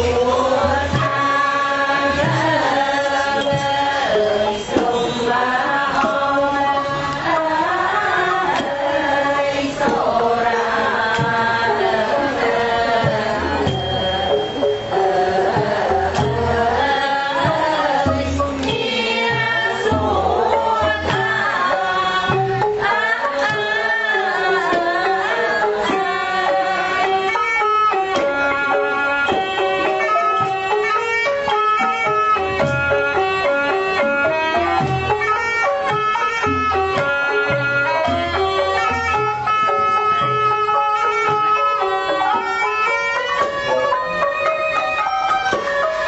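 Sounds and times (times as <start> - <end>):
wavering ornamented melody: 11.7 - 24.4.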